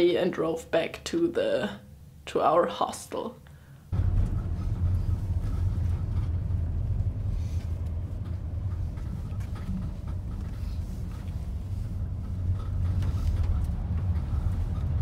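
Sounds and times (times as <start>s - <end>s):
vehicle engine and tyres rumbling: 3.9s - 15.0s.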